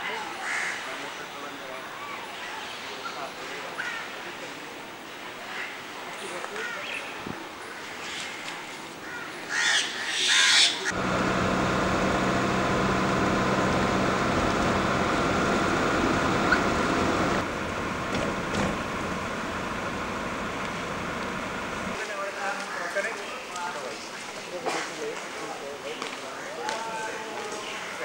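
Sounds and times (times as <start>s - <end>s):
quiet street ambience: 0.0s - 28.0s
crow cawing: 9.0s - 10.9s
car engine hum: 10.9s - 22.0s
road noise inside car: 10.9s - 22.0s.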